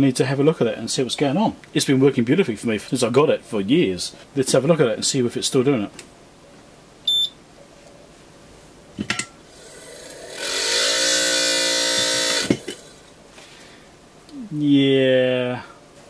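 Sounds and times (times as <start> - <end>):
short beep: 7.1 - 7.4
blower fan whining: 9.1 - 16.0.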